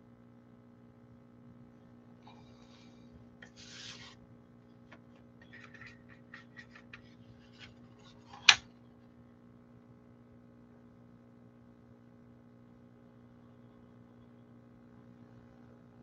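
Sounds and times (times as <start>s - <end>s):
low electrical hum: 0.0s - 16.0s
paper rustling: 3.4s - 4.2s, 4.9s - 8.6s
paper sheet slapping on table: 5.0s - 8.6s.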